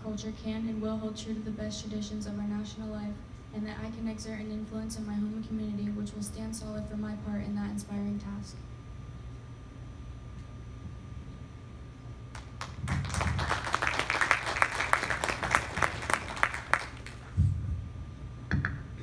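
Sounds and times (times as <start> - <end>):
audience applauding: 12.4 - 17.4.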